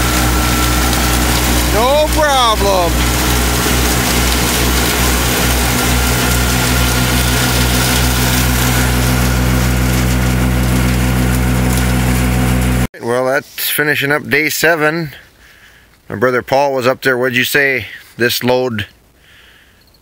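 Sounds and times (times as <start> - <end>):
silo blower humming: 0.0 - 12.9.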